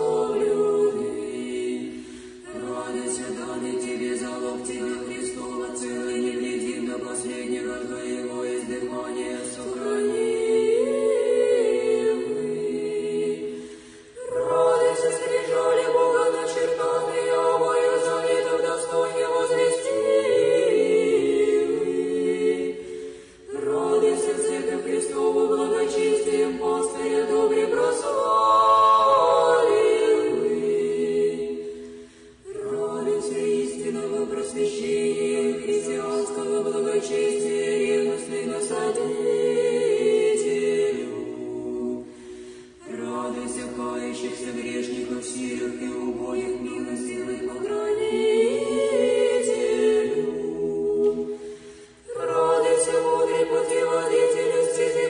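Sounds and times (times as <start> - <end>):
choir singing a slow chant: 0.0 - 55.0.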